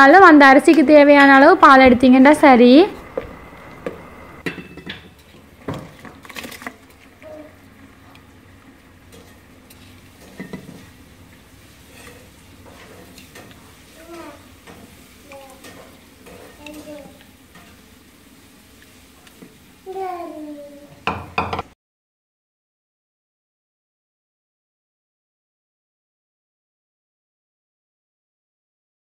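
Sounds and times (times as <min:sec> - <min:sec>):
knocks and clinks against metal pot: 0:04.4 - 0:05.9.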